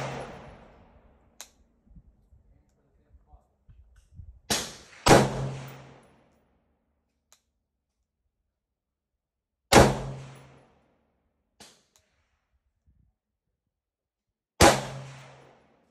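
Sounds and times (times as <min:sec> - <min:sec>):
rifle shots: 0:00.0 - 0:01.1, 0:04.5 - 0:06.2, 0:09.7 - 0:10.6, 0:14.6 - 0:15.6.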